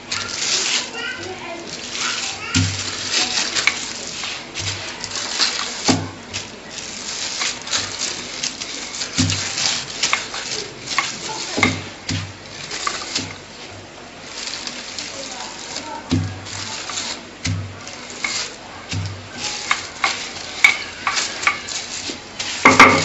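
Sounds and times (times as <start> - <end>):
plastic film crackling: 0.0 - 23.0
rolling pin thumps: 16.0 - 23.0.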